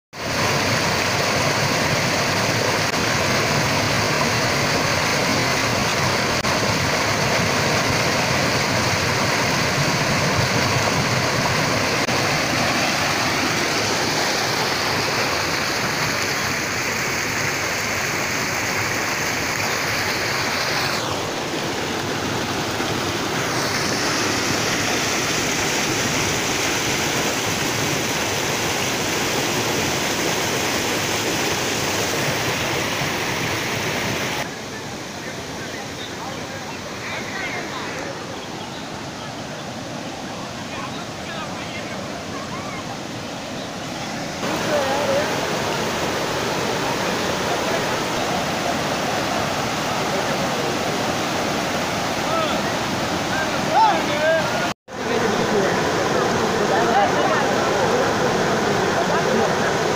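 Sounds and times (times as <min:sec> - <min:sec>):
water rushing over a weir: 0:00.1 - 0:59.9.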